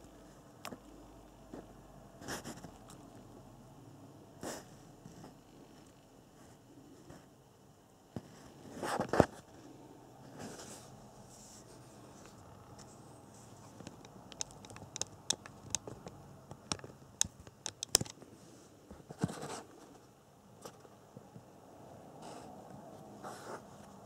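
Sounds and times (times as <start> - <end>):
light clicks and taps: 13.7 - 18.2.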